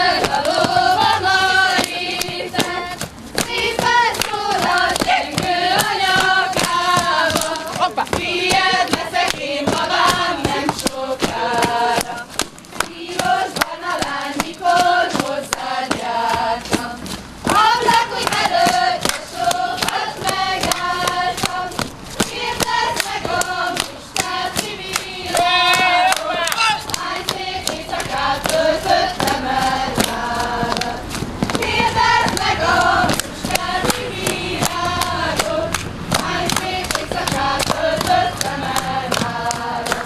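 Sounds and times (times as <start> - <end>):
sharp rhythmic claps: 0.0 - 40.0
women singing folk song: 0.0 - 40.0.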